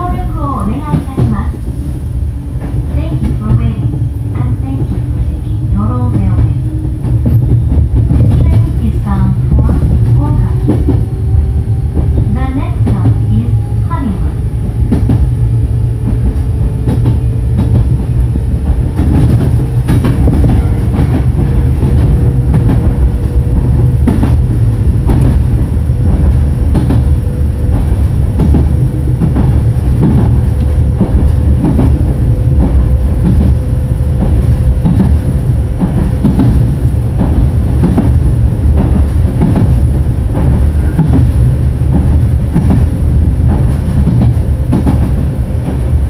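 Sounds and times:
train rumbling: 0.0s - 46.0s
wheels clacking over rail joints: 14.6s - 46.0s.

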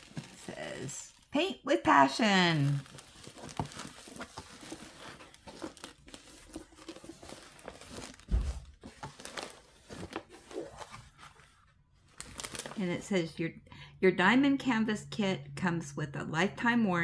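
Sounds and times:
canvas and paper crinkling: 0.0s - 13.0s
dull thump: 8.2s - 8.8s.

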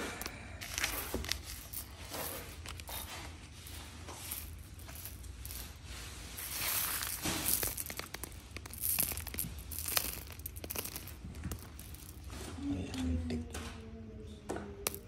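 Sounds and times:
gemstones clicking together: 6.6s - 12.3s.

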